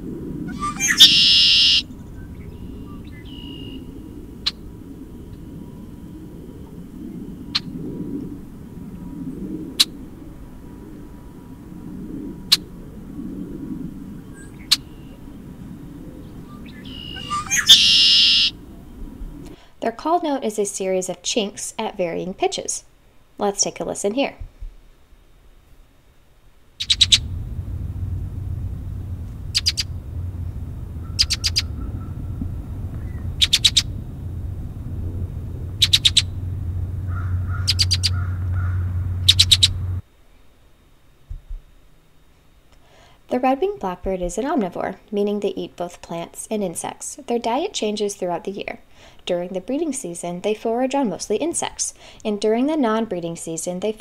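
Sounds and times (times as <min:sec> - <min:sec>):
low steady rumble: 0:00.0 - 0:20.5, 0:24.4 - 0:52.8
faint hum: 0:00.0 - 0:54.0
blackbird chink calls: 0:00.5 - 0:03.8, 0:16.5 - 0:18.6, 0:26.8 - 0:27.3, 0:29.5 - 0:30.0, 0:31.0 - 0:32.3, 0:33.0 - 0:34.0, 0:35.7 - 0:36.5, 0:37.1 - 0:40.0
bird song: 0:00.5 - 0:04.6, 0:14.2 - 0:15.3, 0:16.2 - 0:19.0, 0:26.8 - 0:27.4, 0:29.4 - 0:30.0, 0:31.0 - 0:32.4, 0:33.0 - 0:34.0, 0:35.7 - 0:40.0.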